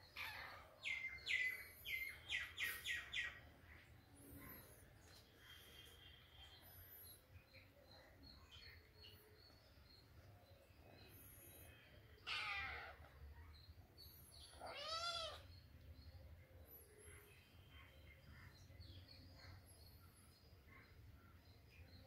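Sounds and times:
cat meowing: 14.5s - 15.4s.

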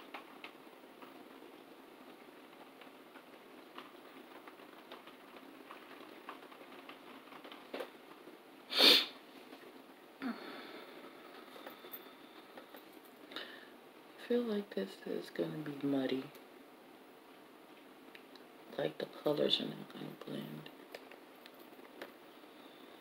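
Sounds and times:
person sniffing: 8.7s - 9.2s.

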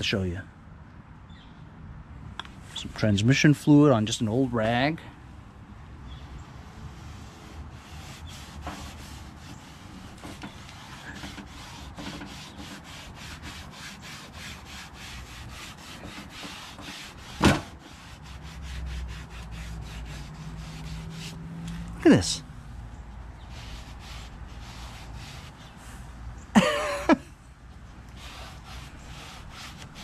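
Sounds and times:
rag rubbing plastic: 6.6s - 21.4s, 23.4s - 25.8s, 28.1s - 30.0s.

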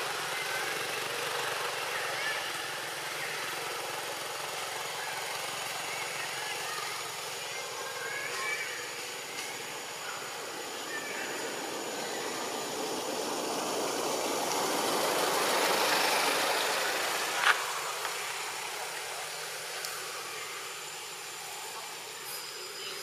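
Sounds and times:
faint high-pitched whine: 0.0s - 23.0s
passing vehicle engine: 11.4s - 19.7s.

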